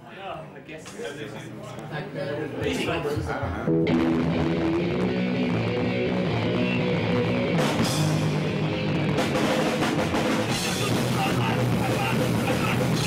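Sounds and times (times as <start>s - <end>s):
punk band playing live: 2.7s - 13.0s.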